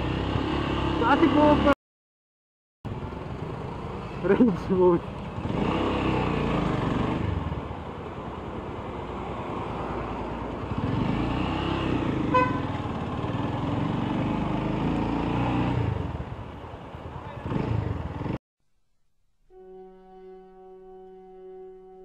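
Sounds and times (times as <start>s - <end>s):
motorcycle engine revving: 0.0s - 1.8s, 5.2s - 7.7s, 10.6s - 16.2s, 17.4s - 18.4s.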